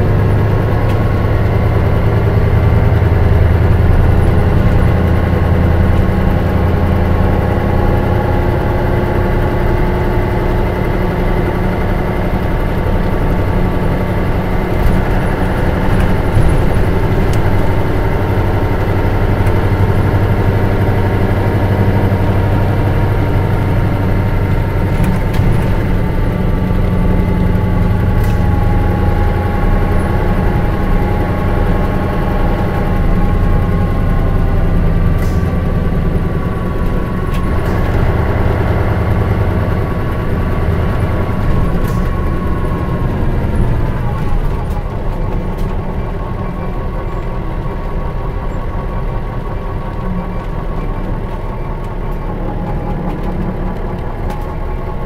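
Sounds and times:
bus diesel engine droning: 0.0 - 55.0.

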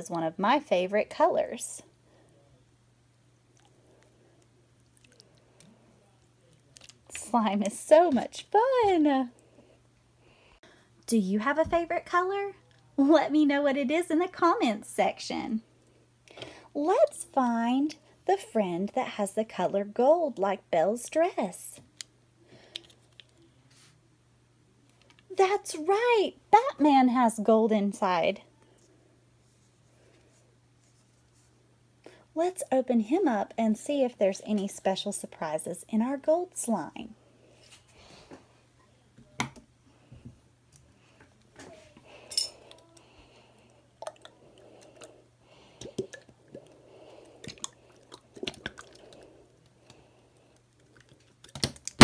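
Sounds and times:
faint steady hum: 0.0 - 52.0
slime squelching: 3.5 - 7.6, 43.9 - 52.0.

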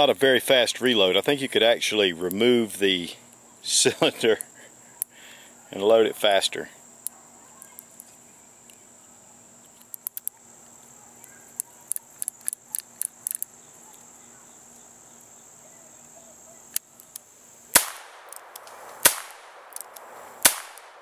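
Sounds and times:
high insect drone: 0.0 - 21.0
cartridges clicking into revolver: 11.6 - 13.5, 17.8 - 21.0.

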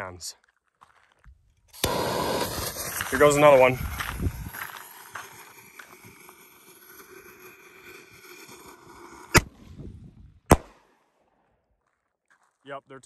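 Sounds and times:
burning fuse hissing: 1.8 - 9.5
firework bangs: 1.8 - 9.8, 10.5 - 10.8.

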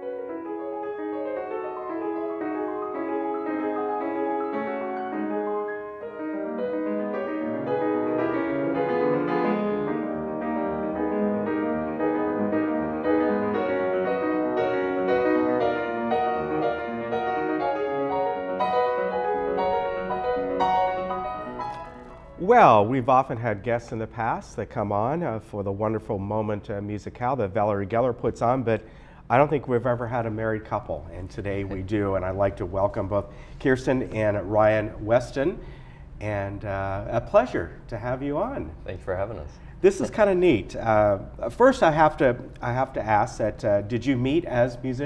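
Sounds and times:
piano music: 0.0 - 26.7.

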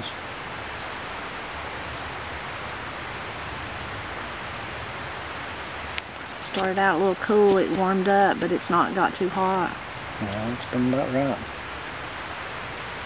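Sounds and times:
outdoor background hiss: 0.0 - 13.0
faint high bird chirp: 9.8 - 11.3.

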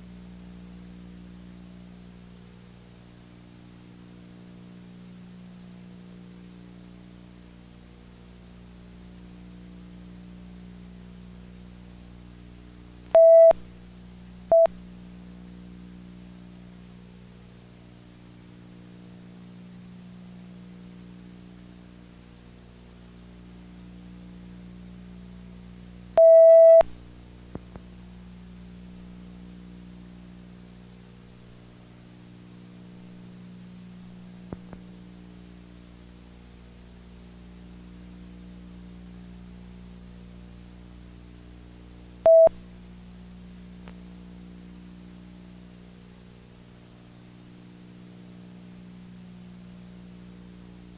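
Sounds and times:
electrical mains hum: 0.0 - 50.9
single-pitched beep: 13.2 - 13.6, 14.5 - 14.7, 26.2 - 26.8, 42.3 - 42.6.

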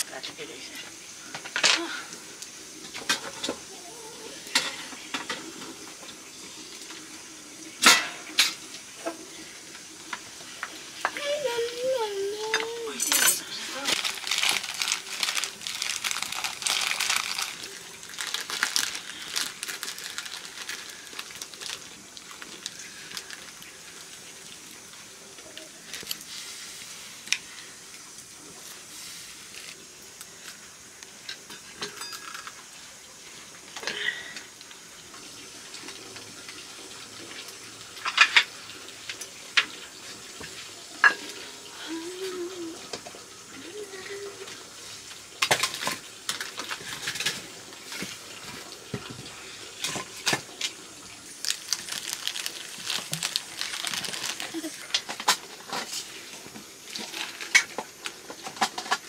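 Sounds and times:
steady hiss: 0.0 - 59.0
pots and utensils clinking: 2.8 - 3.8, 4.4 - 6.2, 7.8 - 9.2, 12.4 - 21.8, 31.2 - 32.6, 38.0 - 39.7, 40.4 - 41.5, 45.4 - 50.8, 51.5 - 59.0.

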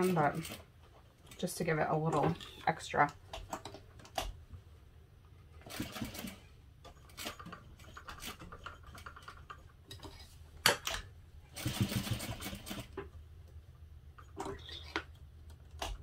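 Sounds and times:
industrial sewing machine stitching: 5.6 - 6.4, 11.5 - 12.9.

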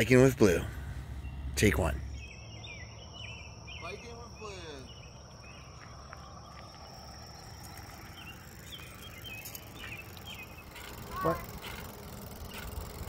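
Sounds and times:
low rumble: 0.0 - 3.8
bird chirps: 0.0 - 12.9.

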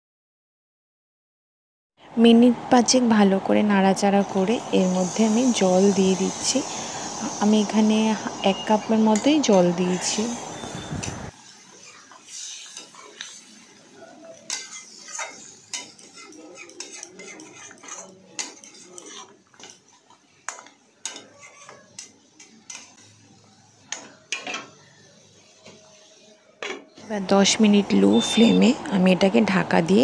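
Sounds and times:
spatula scraping a metal pan: 11.7 - 13.7, 14.4 - 19.9, 20.5 - 23.1, 23.9 - 26.9.

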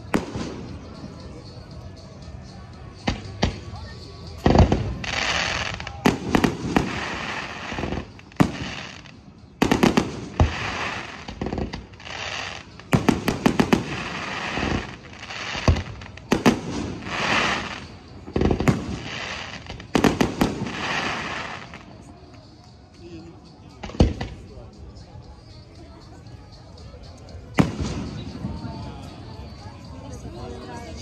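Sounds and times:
firework crackling: 3.1 - 22.6.

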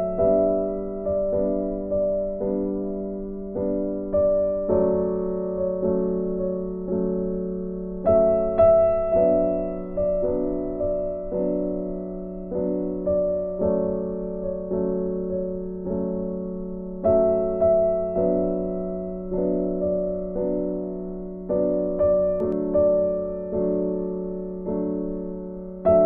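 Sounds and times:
gentle piano tune: 0.0 - 26.0.

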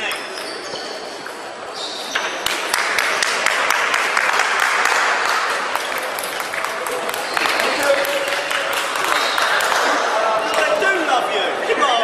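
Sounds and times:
hand-clapping applause: 2.4 - 10.7.

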